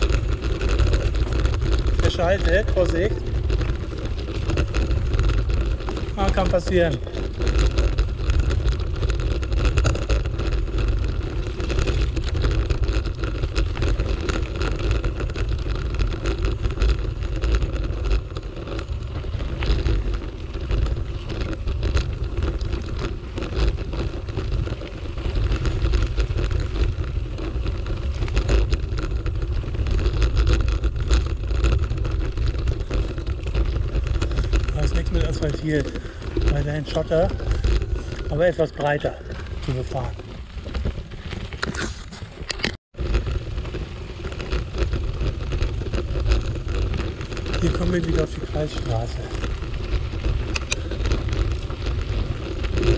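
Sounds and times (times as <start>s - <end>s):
bicycle tyres rolling on gravel: 0.0s - 52.9s
stones and bike rattling: 0.0s - 52.9s.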